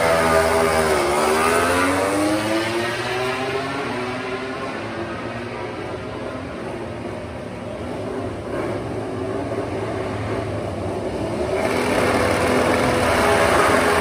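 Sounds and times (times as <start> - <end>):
racing motorcycle engine: 0.0 - 14.0.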